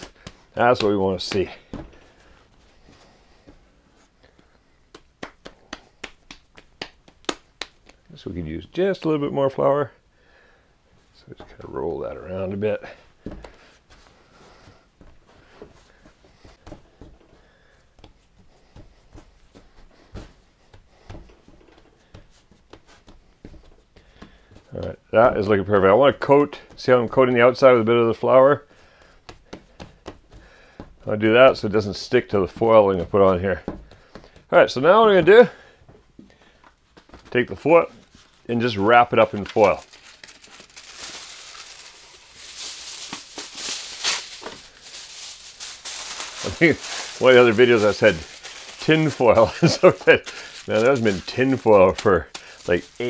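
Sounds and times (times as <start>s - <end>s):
hands kneading dough: 0.0s - 9.6s, 11.0s - 53.0s
soft thumps and rubbing: 13.2s - 24.7s
foil crinkling: 38.0s - 53.0s
foil pulled and torn: 39.2s - 53.0s.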